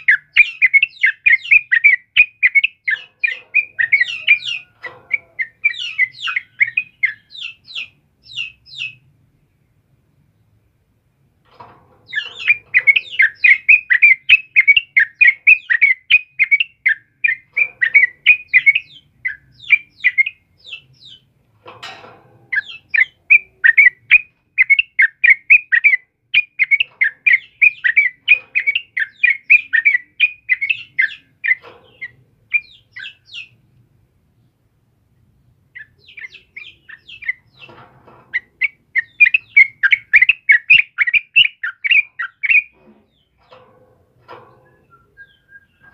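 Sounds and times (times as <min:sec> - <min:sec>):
bulbul chirping: 0:00.0 - 0:09.0, 0:12.1 - 0:21.3, 0:22.5 - 0:33.6, 0:35.8 - 0:37.7, 0:38.3 - 0:43.3.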